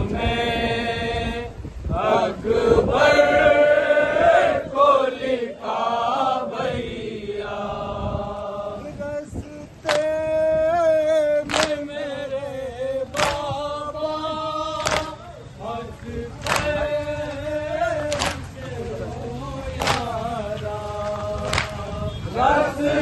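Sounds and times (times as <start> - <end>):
men chanting in unison: 0.0 - 23.0
hands slapping chests: 9.8 - 10.1, 11.4 - 11.9, 13.1 - 13.5, 14.8 - 15.2, 16.4 - 16.8, 18.1 - 18.5, 19.8 - 20.2, 21.4 - 21.8.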